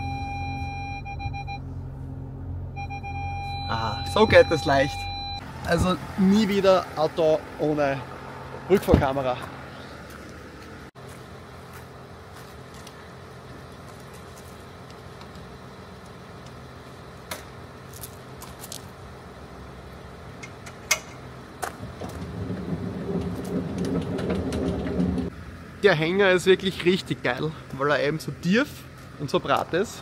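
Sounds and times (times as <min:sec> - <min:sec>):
truck engine idling: 0:00.0 - 0:30.0
tow hitch clicks and jingles: 0:20.4 - 0:25.3.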